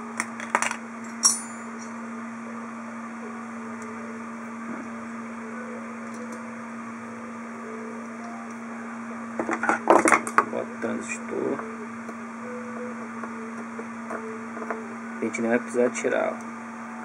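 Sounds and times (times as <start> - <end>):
low electrical hum: 0.0 - 17.0
sharp metallic click with ring: 1.1 - 2.0.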